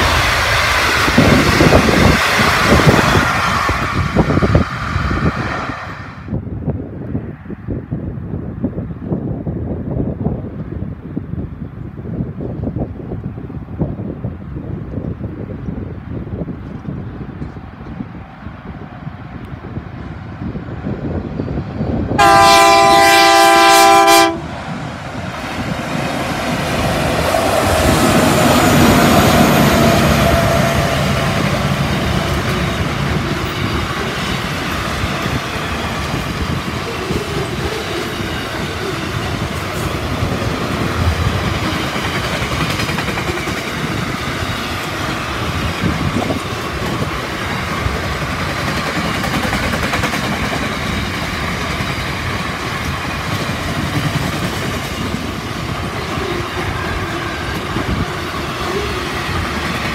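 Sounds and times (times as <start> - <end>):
freight wagons rumbling: 0.0 - 5.4
diesel locomotive engine: 0.0 - 59.9
locomotive horn: 22.2 - 24.6
train wheel clicks: 41.3 - 55.2.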